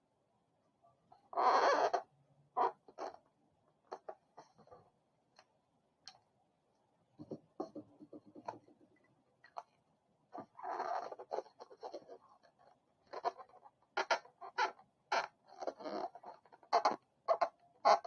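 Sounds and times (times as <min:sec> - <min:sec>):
balloon squeaking and rubbing: 0:01.4 - 0:03.2, 0:13.1 - 0:18.0.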